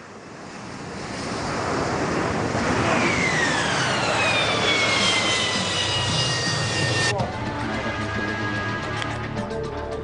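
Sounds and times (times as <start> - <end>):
jet engine running hard: 0.0 - 9.4
high engine whine falling in pitch: 2.6 - 9.3.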